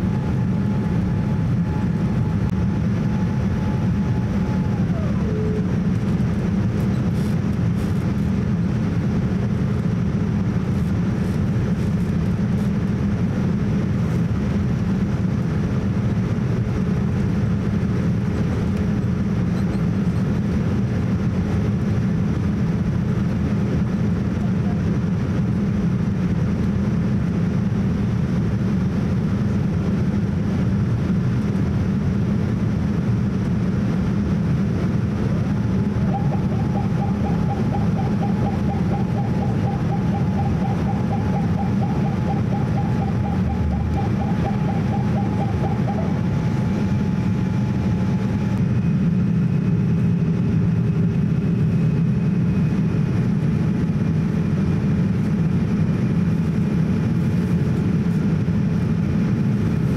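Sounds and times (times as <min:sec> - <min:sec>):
faint warbling whine: 0:00.0 - 0:07.2, 0:35.2 - 0:50.5
jet engine roar in cabin: 0:00.0 - 0:59.9
faint high tone: 0:36.0 - 0:46.3.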